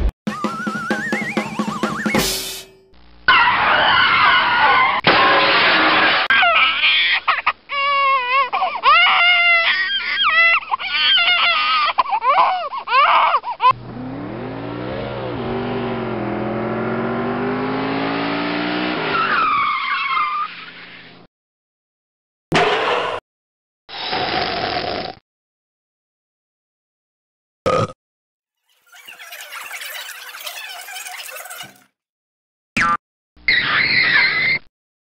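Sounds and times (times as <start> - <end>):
car engine revving: 13.7 - 19.2
tire squeal screeches: 18.7 - 21.2, 33.5 - 34.7.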